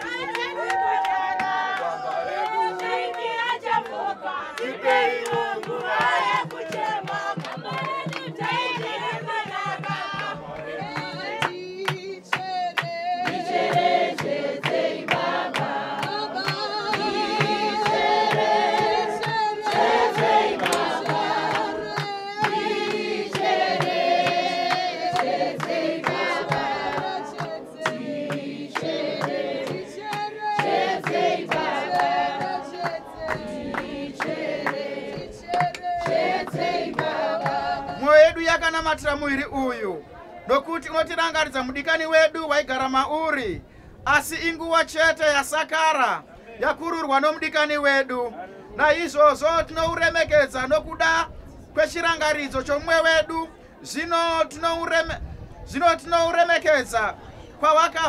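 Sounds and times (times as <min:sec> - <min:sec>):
group singing in harmony: 0:00.0 - 0:38.4.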